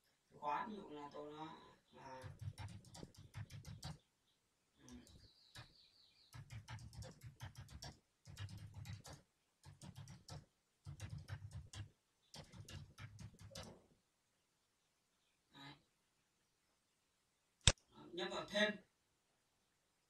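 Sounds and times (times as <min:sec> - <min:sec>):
computer keyboard typing: 0:02.2 - 0:04.0, 0:04.9 - 0:05.7, 0:06.3 - 0:13.8.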